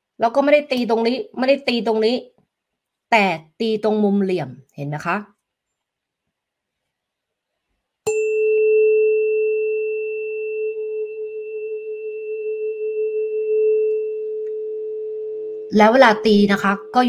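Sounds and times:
tuning fork struck with mallet: 8.1 - 14.6
tuning fork ringing pure tone: 8.1 - 15.7.

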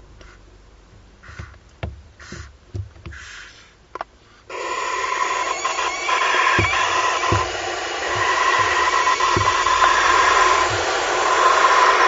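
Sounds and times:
owl chicks hissing: 1.2 - 1.6, 2.2 - 12.0
taps and scuffs on wood chips: 1.2 - 4.1, 6.4 - 11.3.

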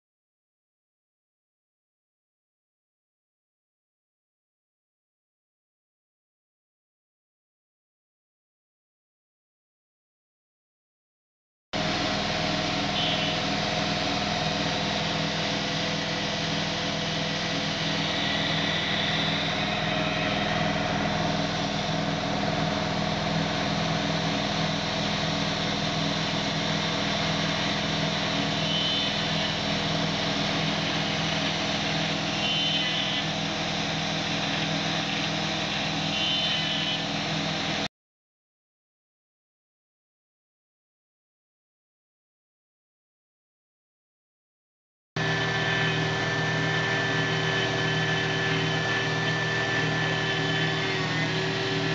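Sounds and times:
end mill cutting metal: 11.8 - 37.8, 45.2 - 51.9
spindle whine: 11.8 - 37.9, 45.2 - 51.9
high-pitched cutter chirps: 12.0 - 24.0, 27.2 - 33.5, 34.4 - 37.2, 45.2 - 51.9.

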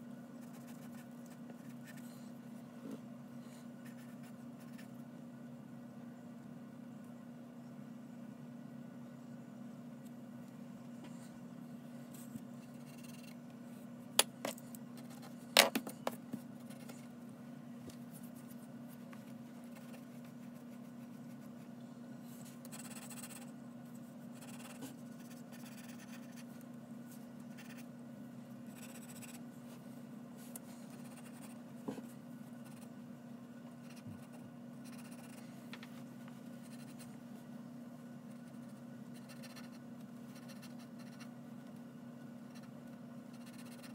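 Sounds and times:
steady low hum: 0.0 - 43.9
pencil scratching on paper: 0.4 - 2.1, 3.8 - 4.9, 19.6 - 21.7, 22.6 - 23.5, 24.4 - 26.5, 27.5 - 27.9, 28.7 - 29.4, 30.9 - 31.6, 32.6 - 32.9, 33.8 - 35.4, 36.6 - 37.2, 38.3 - 41.3, 42.5 - 43.9.

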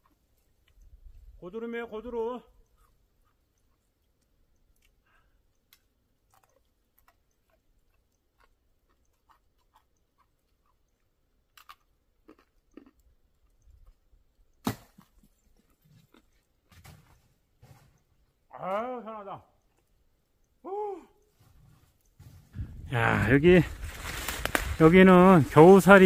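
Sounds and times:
footsteps crunching on snow: 21.4 - 26.0.

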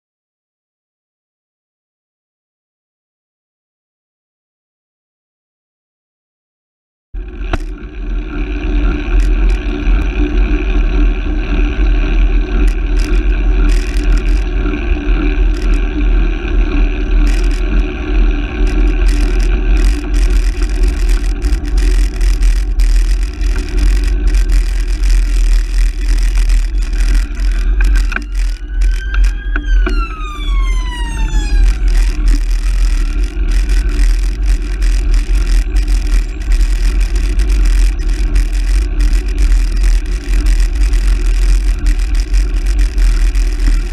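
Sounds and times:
road rumble: 7.2 - 43.9
police siren wailing: 23.5 - 34.6.

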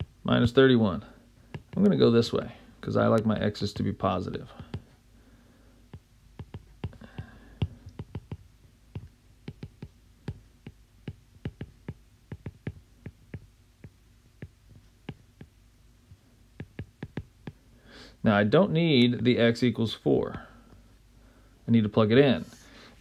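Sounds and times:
stylus tapping on glass screen: 5.9 - 15.6, 16.6 - 17.6.

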